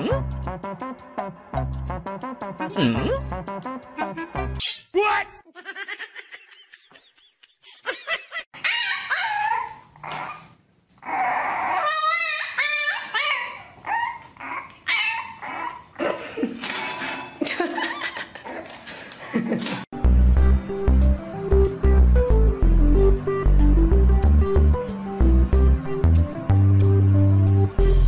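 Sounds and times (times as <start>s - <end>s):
music: 0.0s - 4.6s, 19.9s - 28.0s
puppies whining and yipping: 8.6s - 16.0s.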